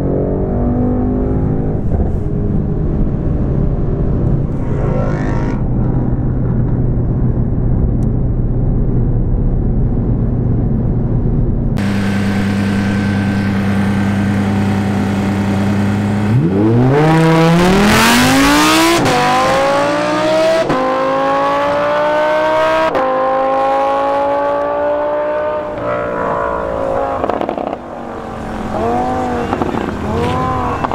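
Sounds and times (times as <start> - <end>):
sports car accelerating hard: 0.0 - 7.0, 11.8 - 30.9
car engine drone in cabin: 0.0 - 30.9
road noise: 0.0 - 30.9
sports car idling: 4.5 - 16.4.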